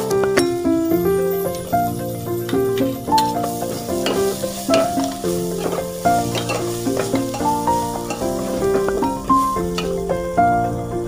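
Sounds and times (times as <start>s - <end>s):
background music: 0.0s - 11.0s
vegetables sizzling in oil: 1.5s - 11.0s
metal ladle scraping a pot: 2.8s - 10.1s.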